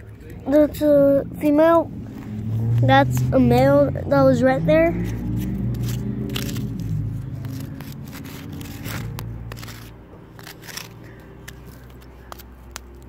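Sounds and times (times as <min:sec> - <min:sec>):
fingers scraping dry dirt: 0:05.0 - 0:12.8.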